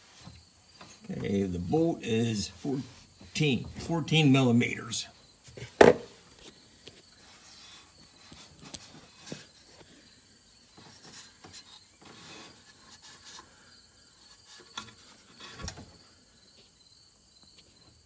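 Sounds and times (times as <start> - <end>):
insect chirping: 0.0 - 18.0
wrench knocks and clunks: 5.8 - 6.1.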